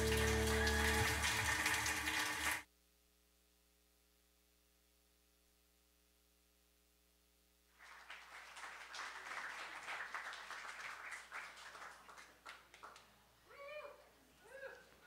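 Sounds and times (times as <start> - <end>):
audience applauding: 0.0 - 2.6, 7.8 - 13.1.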